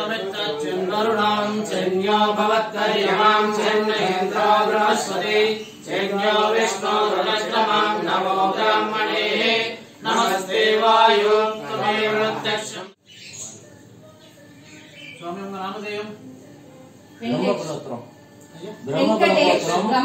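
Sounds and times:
men chanting together: 0.0 - 13.0.

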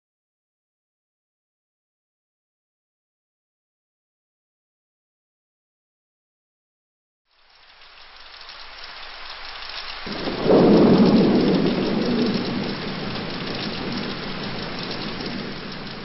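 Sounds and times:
steady rain: 7.3 - 16.0
thunder rumbling: 10.0 - 16.0.

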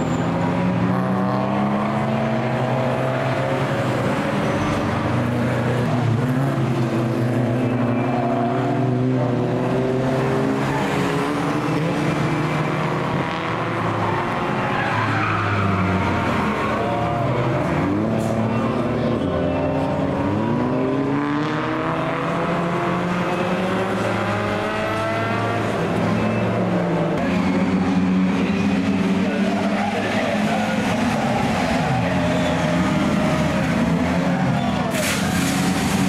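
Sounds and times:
racing car engines passing: 0.0 - 36.0
tyres skidding and squealing: 0.0 - 36.0.

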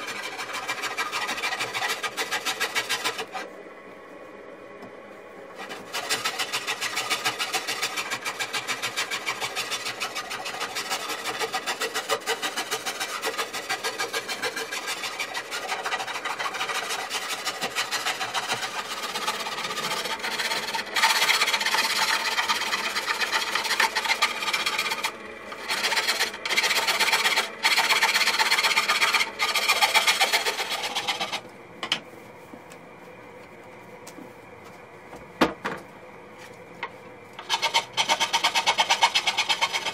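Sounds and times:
hand rasp scraping wood: 0.0 - 3.5, 5.6 - 31.4, 37.4 - 39.9.

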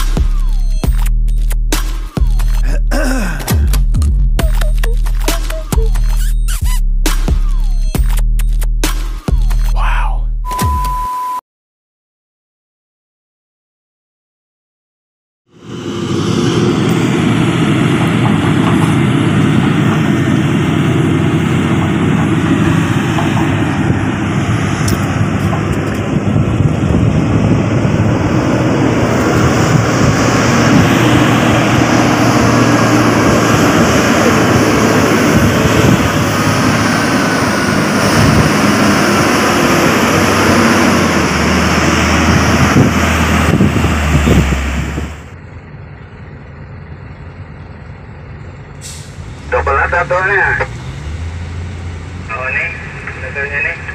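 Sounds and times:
truck diesel engine running: 0.0 - 6.5, 15.6 - 53.9
deeper engine note: 15.5 - 53.9.

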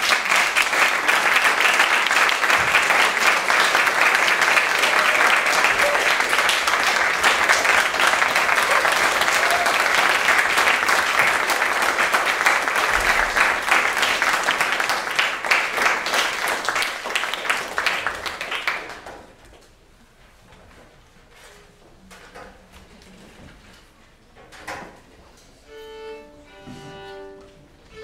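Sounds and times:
audience applauding: 0.0 - 19.4.

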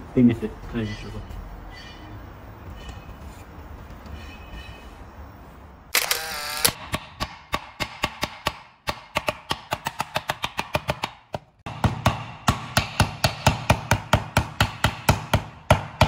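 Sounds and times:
hammer knocking on light fixture: 9.5 - 16.0.

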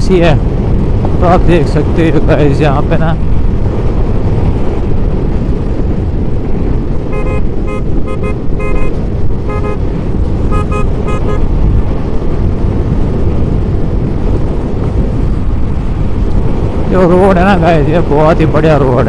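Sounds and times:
motorcycle riding: 0.0 - 19.0
wind rumble: 0.0 - 19.0
vehicle horn beeps: 7.1 - 9.8, 10.5 - 11.5.

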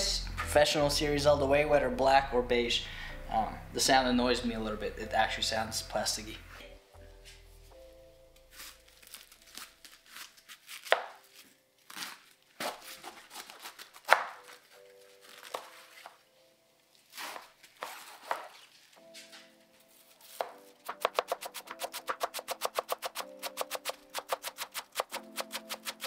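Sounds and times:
knife crunching through cabbage: 8.5 - 16.0, 17.0 - 19.1, 20.2 - 26.0.

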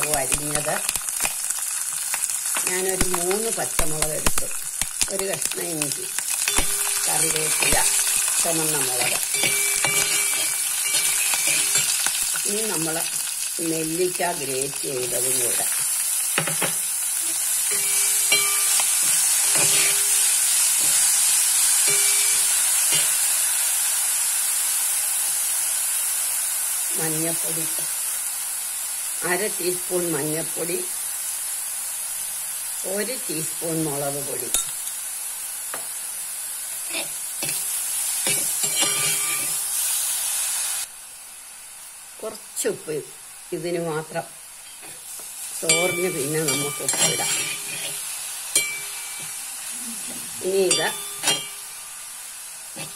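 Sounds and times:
sizzling in hot oil: 0.0 - 52.9
metal spoon scraping pan: 6.4 - 12.8, 16.4 - 23.2, 36.9 - 39.6, 45.6 - 49.4, 50.6 - 51.7.

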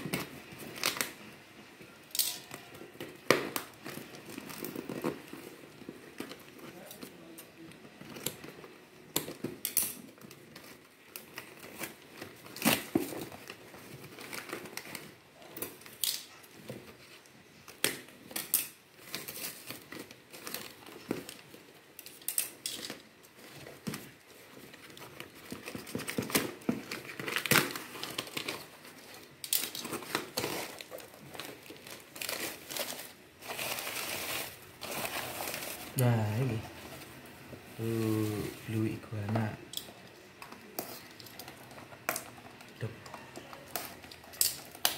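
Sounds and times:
newspaper crumpling: 0.0 - 1.5, 22.8 - 39.5
tape and cardboard ripping: 8.1 - 15.2, 17.7 - 36.1
scissors cutting packing tape: 9.1 - 13.5.

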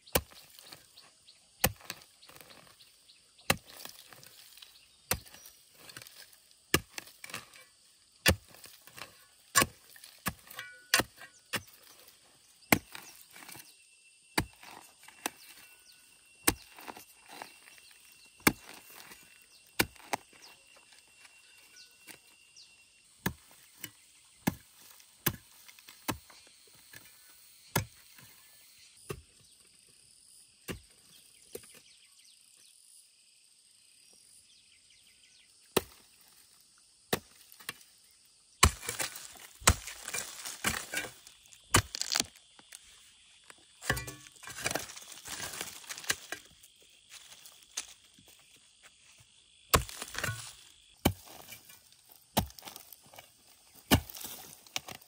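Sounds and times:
hoe chopping into dry soil: 0.0 - 0.9, 1.6 - 13.7, 14.3 - 27.1, 27.7 - 28.3, 35.7 - 36.1, 38.6 - 42.8, 43.4 - 48.0, 49.7 - 55.0
scraping and crunching earth: 0.0 - 29.5, 35.6 - 55.0.

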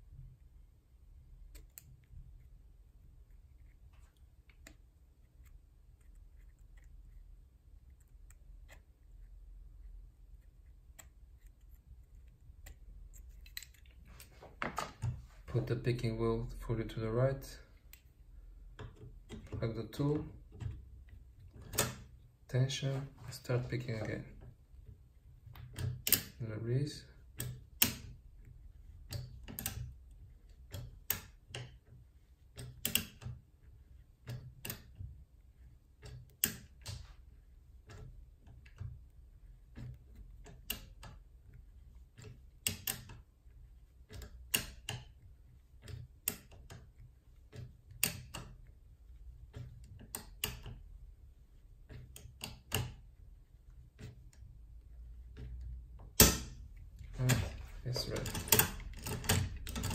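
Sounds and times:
lock pick metal clicks: 11.0 - 14.0, 25.6 - 26.4, 44.1 - 45.2, 45.8 - 48.6, 57.3 - 59.9.

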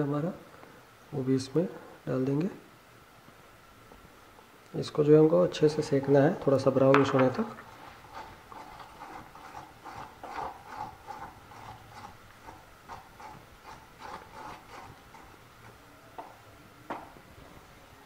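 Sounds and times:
spoon scraping metal pan: 7.6 - 15.8.

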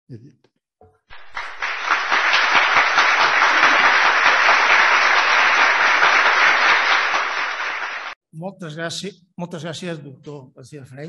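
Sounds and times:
audience applause: 1.1 - 8.2.

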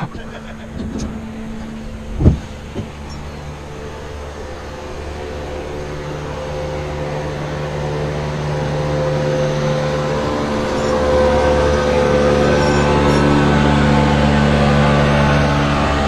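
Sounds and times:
boat motor humming: 0.0 - 16.0.

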